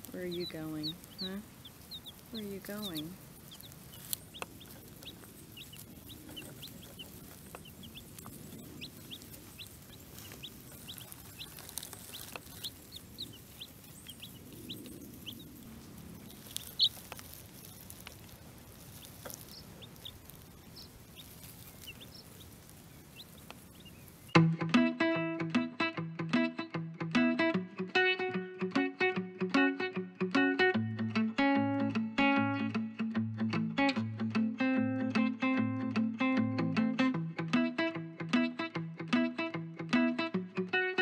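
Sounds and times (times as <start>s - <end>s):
baby chicks peeping: 0.0s - 24.4s.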